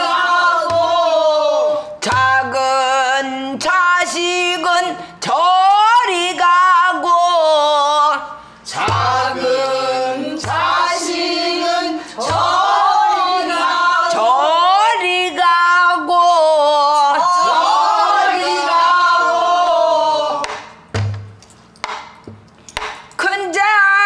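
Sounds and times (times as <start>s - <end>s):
barrel drum thumps and clicks: 20.4s - 23.1s.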